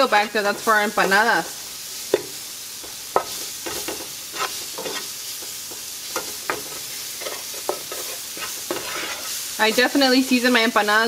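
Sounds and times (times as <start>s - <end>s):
vegetables sizzling in oil: 0.0s - 11.0s
wooden spoon scraping pan: 2.1s - 10.6s.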